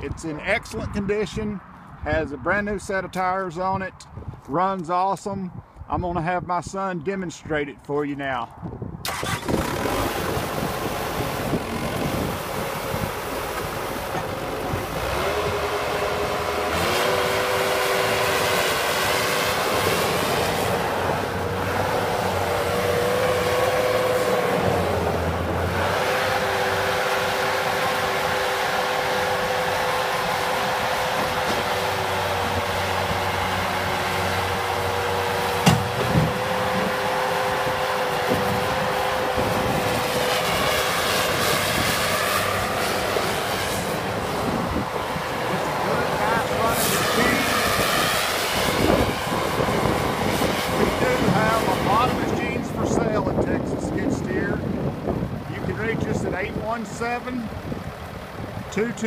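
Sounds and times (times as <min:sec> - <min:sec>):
constant whine: 0:07.8 - 0:59.0
diesel loader engine running: 0:09.0 - 0:59.0
sharp knocks: 0:35.6 - 0:36.4.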